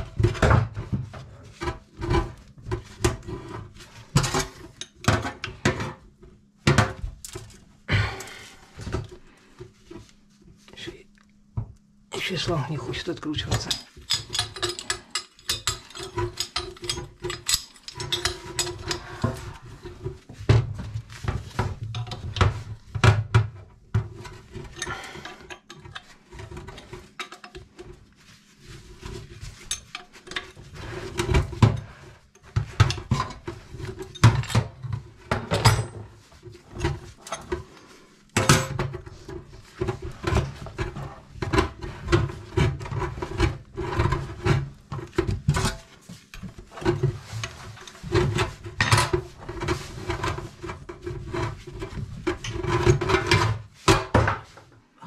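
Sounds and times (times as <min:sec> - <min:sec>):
tools clinking on metal fittings: 0:13.4 - 0:19.1.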